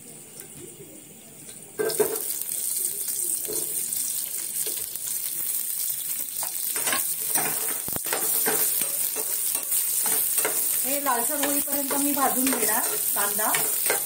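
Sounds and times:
onion sizzling in hot oil: 1.7 - 14.0
spoon scraping through pan: 6.4 - 14.0.

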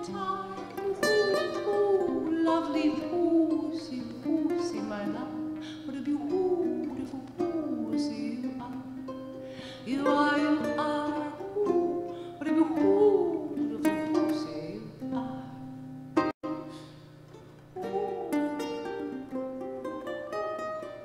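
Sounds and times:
woman singing: 0.0 - 15.7
ukuleles plucked: 0.0 - 21.0.

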